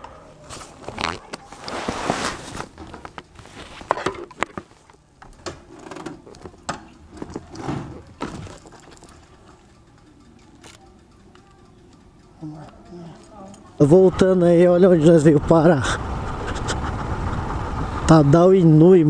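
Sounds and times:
fabric rustling and scraping: 0.5s - 4.9s.

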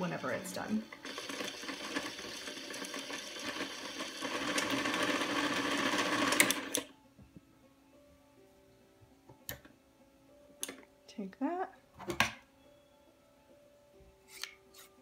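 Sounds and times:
sewing machine motor whirring: 1.0s - 6.9s.

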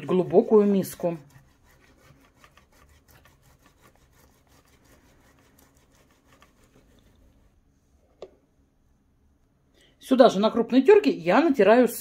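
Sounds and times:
potato rubbed over a metal grater: 0.0s - 7.6s.

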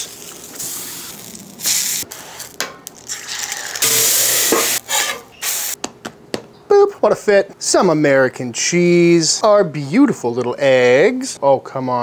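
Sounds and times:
sausage sizzling on a griddle: 0.0s - 5.8s
steam hissing: 3.8s - 5.8s.

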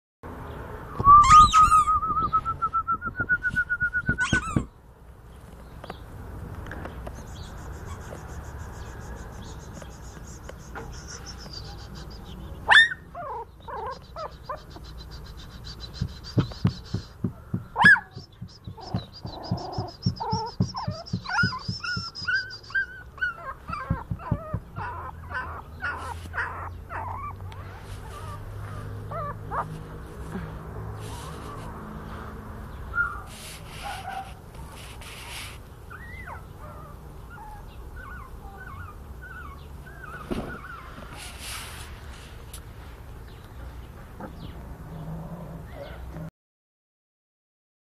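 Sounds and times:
puppy whimpering and squealing: 1.1s - 2.0s, 4.1s - 4.7s, 7.7s - 16.8s, 18.8s - 29.8s, 32.9s - 33.3s, 35.9s - 41.3s.

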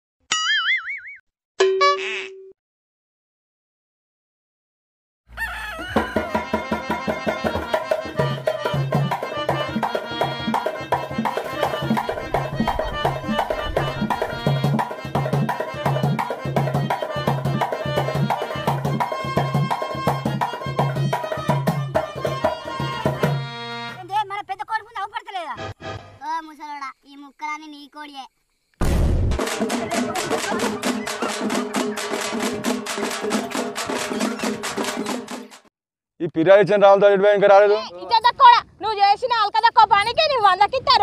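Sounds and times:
upbeat music with drum beat: 6.0s - 23.5s, 29.4s - 35.7s.

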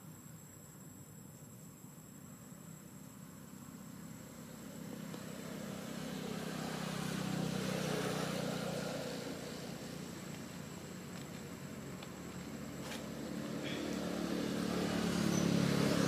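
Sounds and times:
vehicle engine passing by: 3.2s - 16.0s.

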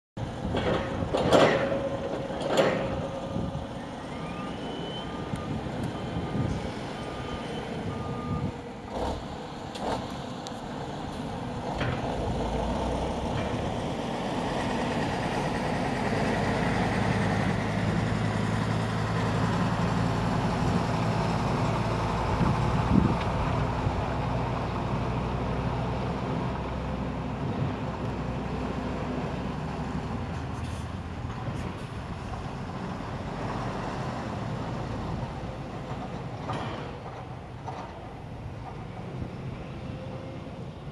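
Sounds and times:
truck diesel engine: 0.2s - 40.9s
reversing alarm beeps: 3.8s - 8.5s.

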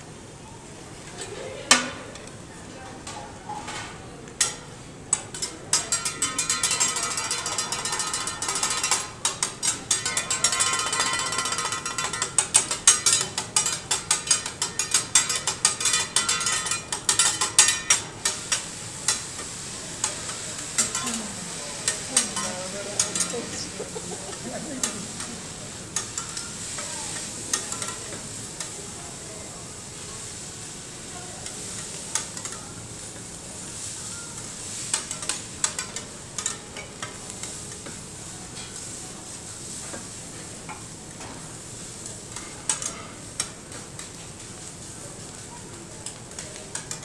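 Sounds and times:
spatula clacking on griddle: 4.4s - 28.8s, 30.3s - 39.0s, 42.3s - 45.4s, 46.0s - 47.0s
food sizzling: 4.5s - 47.0s.

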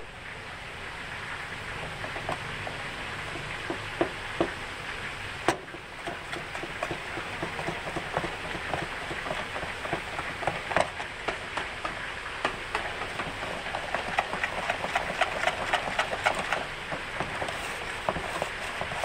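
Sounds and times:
batter stirred in plastic tub: 5.7s - 19.0s.

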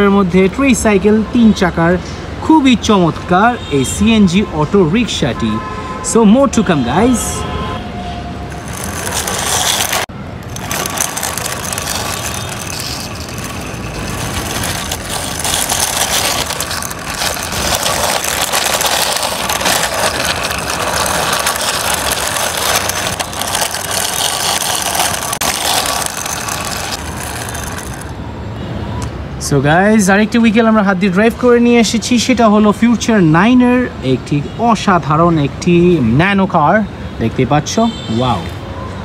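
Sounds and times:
toy car wheels rolling on concrete: 6.9s - 7.4s, 8.3s - 28.2s.

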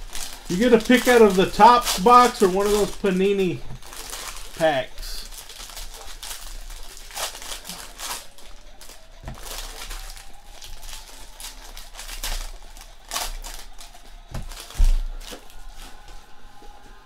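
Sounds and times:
foil wrappers crinkling and tearing: 0.0s - 16.8s.

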